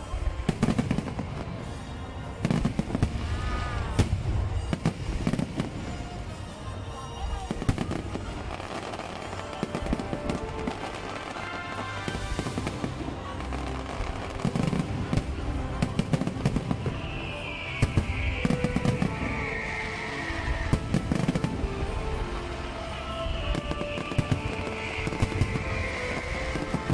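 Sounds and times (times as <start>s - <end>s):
falling firework hiss: 0.0s - 6.6s, 7.2s - 26.9s
firework stars crackling: 0.0s - 26.9s.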